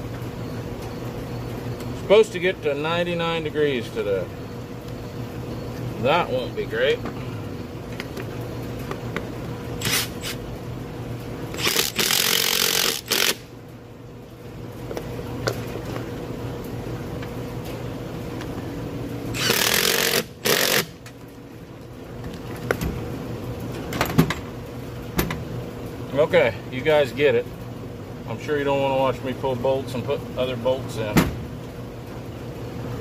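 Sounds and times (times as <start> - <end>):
steady low hum: 0.0 - 33.0
air impact wrench bursts: 9.8 - 10.4, 11.6 - 13.5, 19.3 - 21.0.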